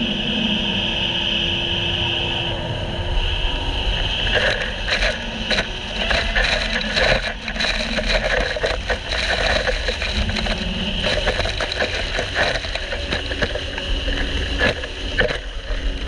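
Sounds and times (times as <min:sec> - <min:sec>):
jet ski running at speed: 0:00.0 - 0:16.0
wind rumble on microphone: 0:00.0 - 0:16.0
crackling splashes: 0:04.0 - 0:16.0.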